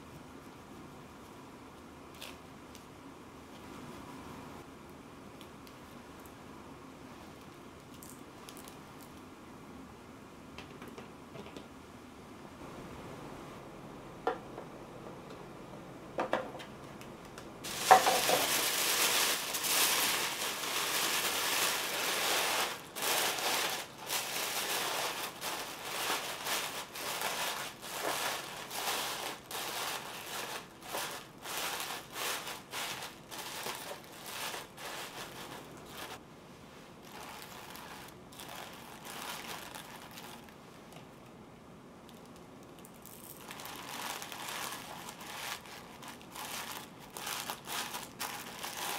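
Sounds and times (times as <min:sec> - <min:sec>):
tissue paper crinkling: 0:17.6 - 0:36.2, 0:37.0 - 0:40.6, 0:43.0 - 0:48.9.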